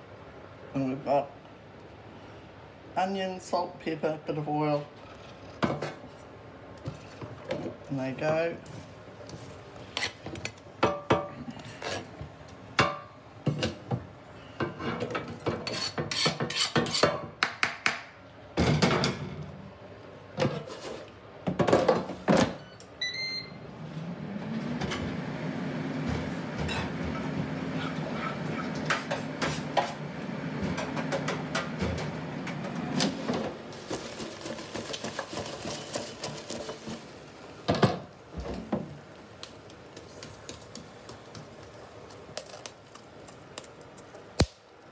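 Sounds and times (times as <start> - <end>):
fan humming: 18.3 - 44.9
air fryer baskets clattering: 18.6 - 19.5, 24.0 - 39.0
control panel beeps: 22.7 - 23.6.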